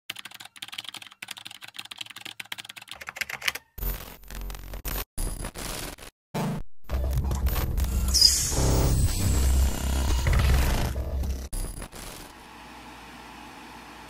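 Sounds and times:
computer keyboard typing: 0.1s - 3.8s.

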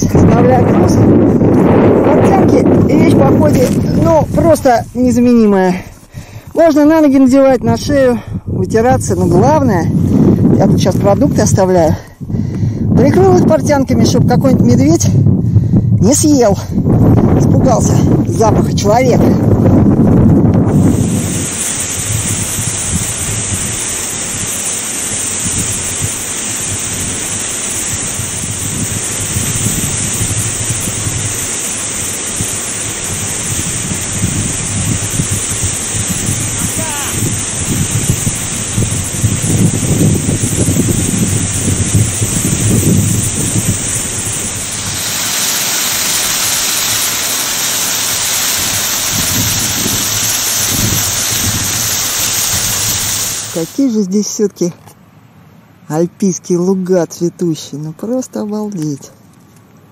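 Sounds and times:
wind buffeting microphone: 0.0s - 53.9s
waterfall rushing: 20.7s - 53.9s.

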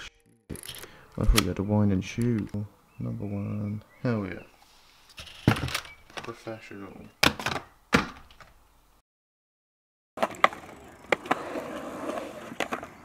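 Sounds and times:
skateboard clacks: 10.2s - 11.6s
skateboard wheels rolling on concrete: 10.2s - 13.0s.

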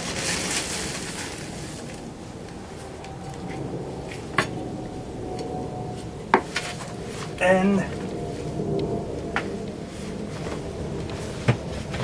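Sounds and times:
gloved hands rustling potting soil: 0.0s - 4.3s.

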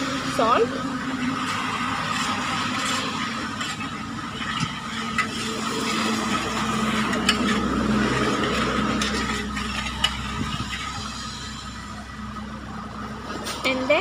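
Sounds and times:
metal spoon stirring in bowl: 1.4s - 11.5s.

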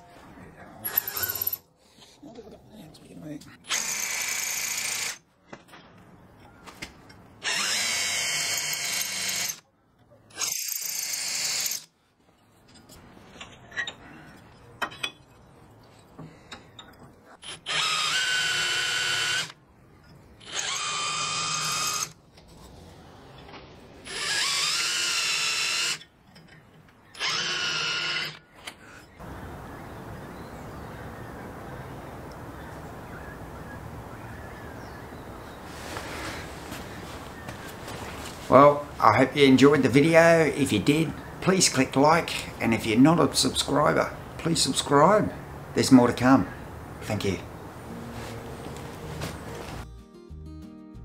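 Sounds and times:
power drill whining: 0.8s - 1.6s, 7.4s - 9.6s, 17.4s - 19.6s, 20.4s - 22.2s, 24.0s - 26.0s, 27.1s - 28.4s.

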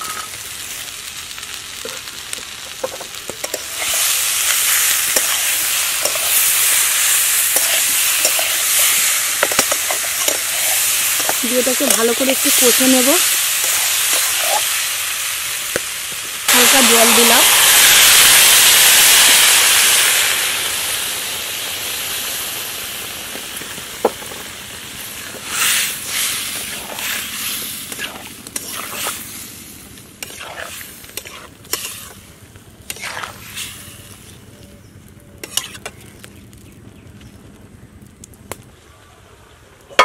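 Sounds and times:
water sizzling in hot oil: 0.0s - 34.4s, 35.4s - 36.0s
metal spatula scraping pan: 30.2s - 32.2s, 32.9s - 33.7s, 35.4s - 36.0s.

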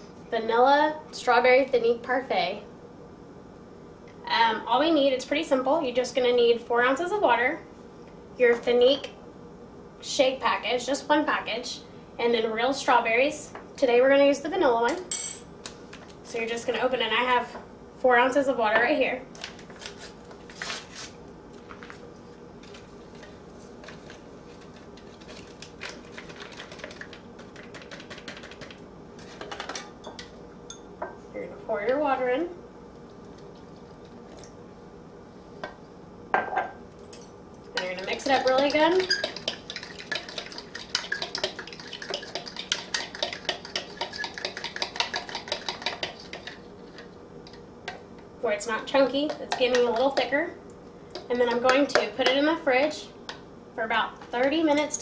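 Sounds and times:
foil packet crinkling: 24.6s - 28.5s
spoon clinking in glass cup: 38.6s - 40.2s.

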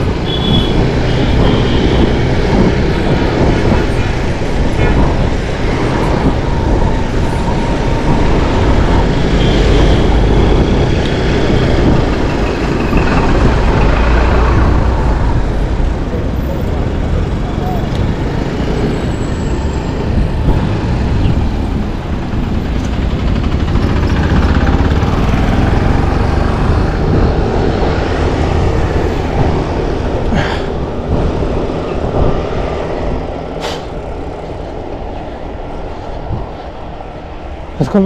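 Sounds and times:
vehicle rumble passing: 0.0s - 38.0s
short hisses: 33.6s - 33.9s.

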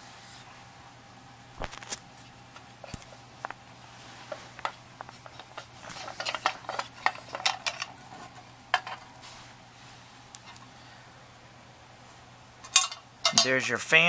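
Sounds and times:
metal casing handling clicks and knocks: 4.6s - 9.1s, 12.6s - 13.5s.

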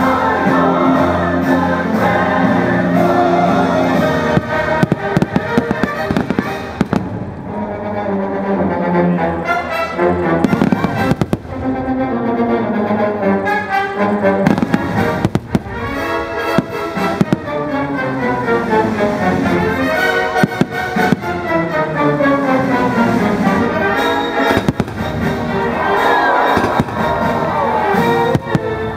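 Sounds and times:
orchestral music with brass: 0.0s - 28.9s
fireworks bursting: 2.0s - 7.8s, 10.4s - 11.9s, 14.4s - 28.9s.

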